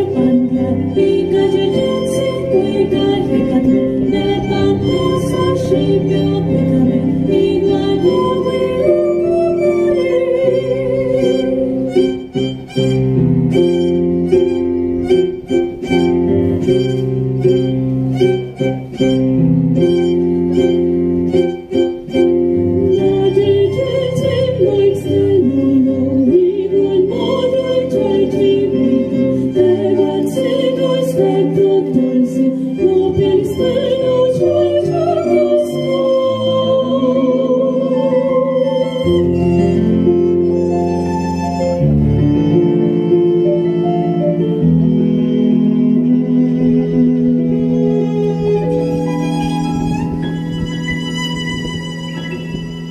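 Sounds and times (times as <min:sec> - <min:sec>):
women singing with vibrato: 0:00.0 - 0:12.0, 0:22.8 - 0:39.9
piano accompaniment: 0:00.0 - 0:52.9
violin melody: 0:00.0 - 0:52.9.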